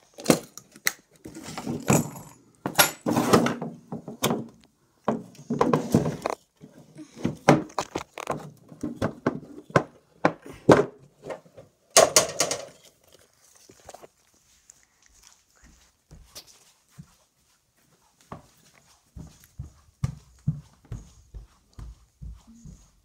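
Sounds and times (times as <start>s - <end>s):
boxes knocking and thunking: 1.3s - 6.4s, 7.1s - 12.7s.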